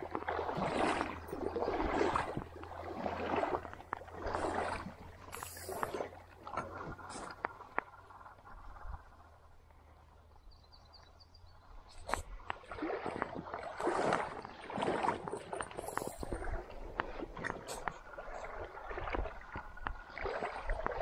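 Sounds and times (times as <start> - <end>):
footsteps splashing through water: 0.0 - 7.7, 12.1 - 21.0.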